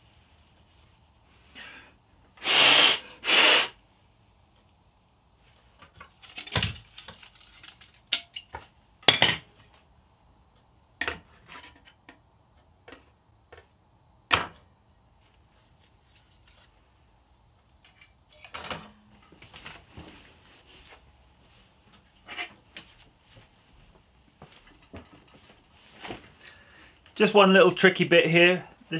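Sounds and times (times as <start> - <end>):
clicks and knocks of handled parts: 5.8 - 9.4, 17.8 - 19.8.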